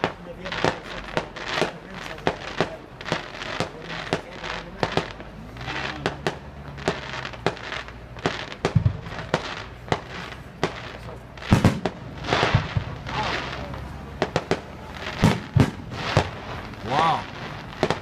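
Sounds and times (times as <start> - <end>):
deep fireworks boom: 0.0 - 18.0
fireworks bangs: 0.0 - 18.0.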